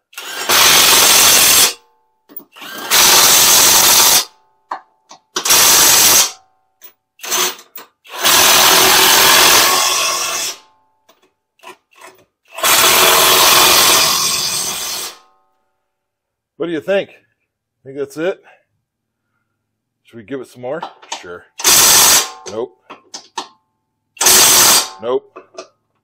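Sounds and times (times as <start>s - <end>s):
impact wrench running in bursts: 0.1s - 1.8s, 2.5s - 4.3s, 5.4s - 6.4s, 7.2s - 10.6s, 12.5s - 15.2s, 21.6s - 22.4s, 24.2s - 25.0s.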